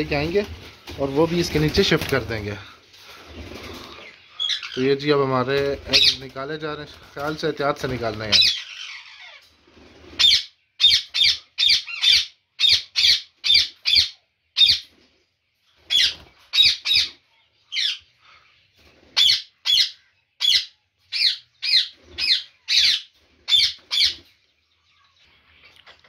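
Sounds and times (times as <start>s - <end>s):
parakeets screeching: 3.0s - 14.9s, 15.8s - 24.4s.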